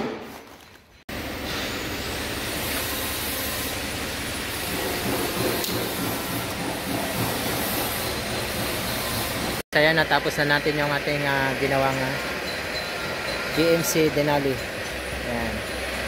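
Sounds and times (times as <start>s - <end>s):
mechanical rumble with hiss: 1.1s - 9.6s.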